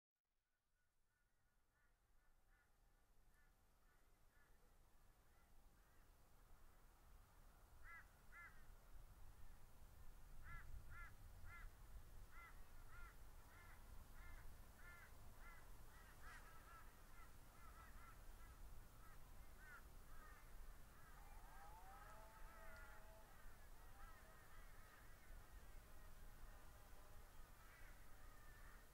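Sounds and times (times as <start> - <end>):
faint low rumble: 2.5 - 28.9
lower sliding bird call: 21.0 - 24.7.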